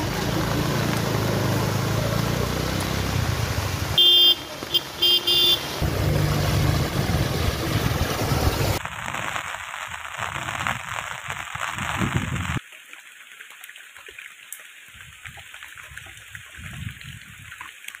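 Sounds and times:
rain falling: 0.0 - 18.0
raindrop ticks: 0.1 - 3.0.

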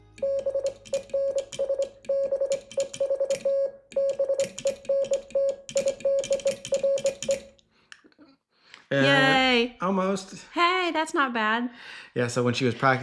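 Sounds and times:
morse code beeping: 0.2 - 7.5
telegraph key clicks: 0.7 - 7.5.

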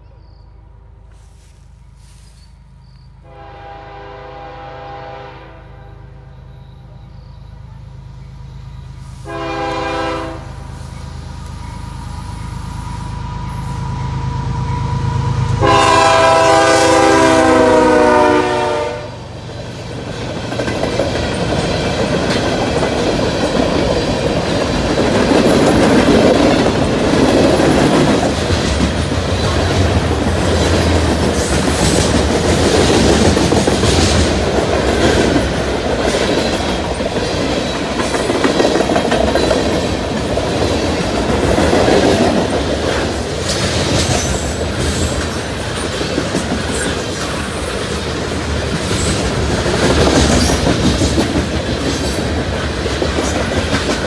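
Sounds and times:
locomotive air horn blasts: 3.2 - 6.5, 9.2 - 10.7, 15.5 - 19.2
freight car wheels rumbling on rail: 6.0 - 54.0.

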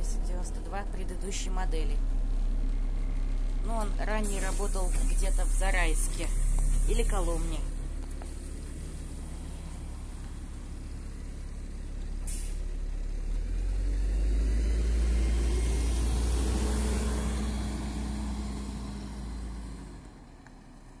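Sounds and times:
bus engine revving: 0.0 - 21.0
compressed air hiss: 4.2 - 7.3, 12.3 - 12.6.

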